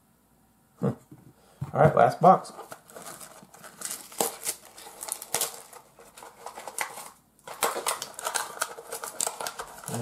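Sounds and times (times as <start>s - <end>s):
pack being opened by hand: 2.8s - 10.0s.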